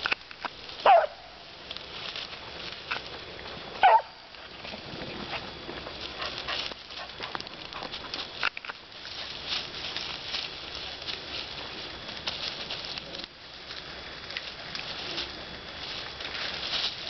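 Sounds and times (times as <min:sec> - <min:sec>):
rustle of brambles and dry leaves: 0:00.0 - 0:17.0
dog barking: 0:00.8 - 0:01.4, 0:03.8 - 0:04.2.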